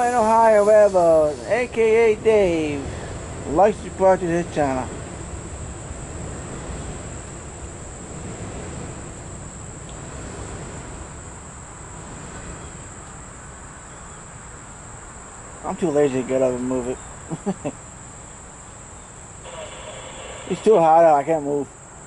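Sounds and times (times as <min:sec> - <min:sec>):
low background rumble: 0:00.0 - 0:21.8
insect chorus droning: 0:00.0 - 0:22.0.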